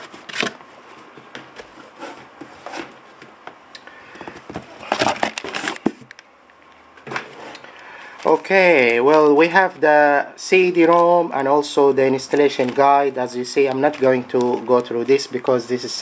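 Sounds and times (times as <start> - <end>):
packing materials rustling: 4.1 - 6.2, 7.0 - 9.4, 12.1 - 15.2.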